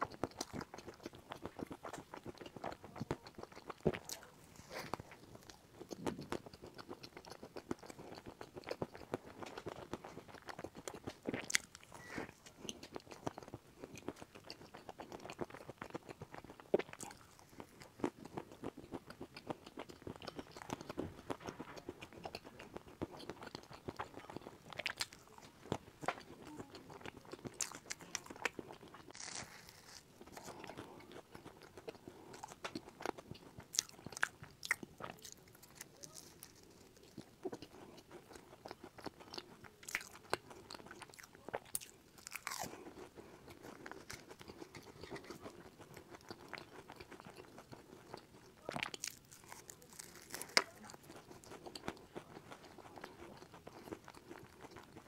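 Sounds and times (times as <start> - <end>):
crisp crunches of biting cake: 0.0 - 55.0
soft wet chewing: 0.0 - 55.0.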